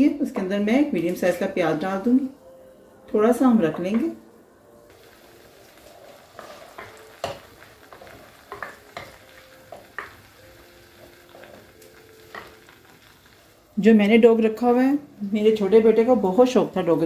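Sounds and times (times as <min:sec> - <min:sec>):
onion sizzling in oil: 0:04.8 - 0:17.0.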